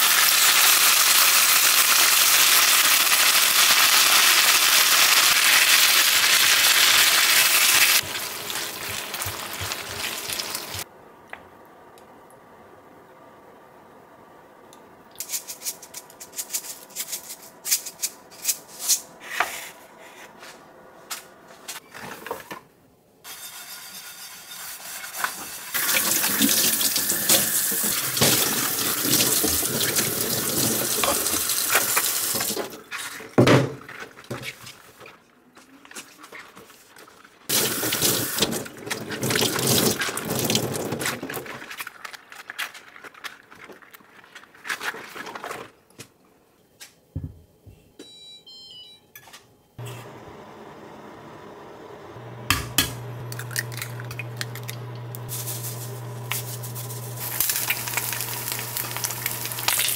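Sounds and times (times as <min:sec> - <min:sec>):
faucet running into steel sink: 0:25.8 - 0:32.5.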